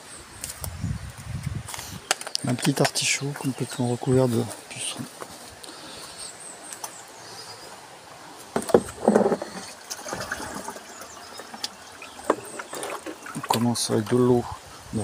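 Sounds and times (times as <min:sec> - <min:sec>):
water splashing in plastic barrel: 0:08.5 - 0:14.3.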